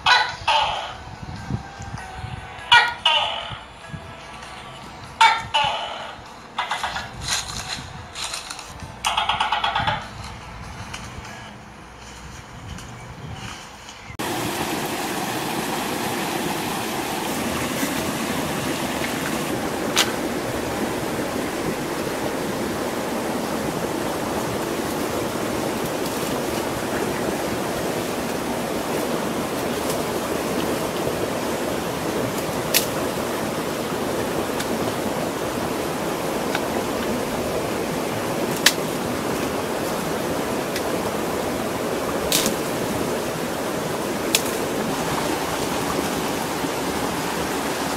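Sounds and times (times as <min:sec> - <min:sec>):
sharp snaps: 0:38.5 - 0:38.9, 0:42.3 - 0:42.7, 0:44.3 - 0:44.6.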